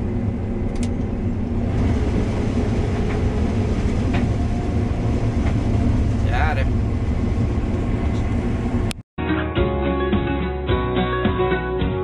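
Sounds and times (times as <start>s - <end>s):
combine harvester running: 0.0s - 9.0s.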